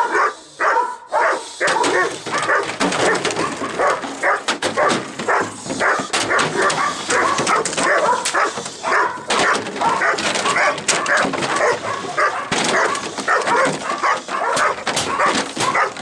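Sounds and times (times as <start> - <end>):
dog barking: 0.0 - 16.0.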